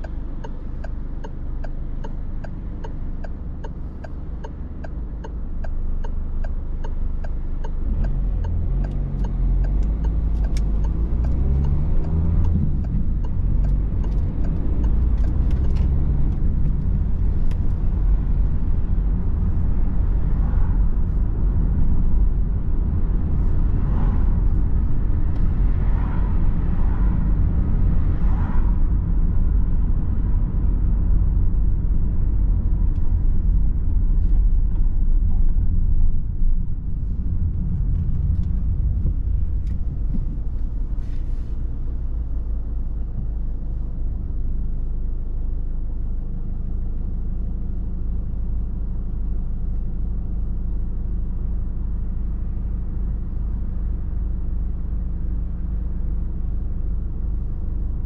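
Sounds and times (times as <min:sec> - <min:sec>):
turn signal ticking: 0:00.0 - 0:25.8, 0:28.8 - 0:43.6
car engine and tyre rumble: 0:00.0 - 0:58.0.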